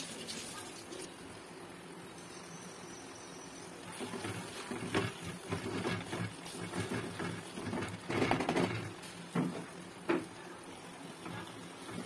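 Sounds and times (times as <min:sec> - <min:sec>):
wooden spatula scraping pot: 0:03.9 - 0:10.3, 0:11.1 - 0:12.0.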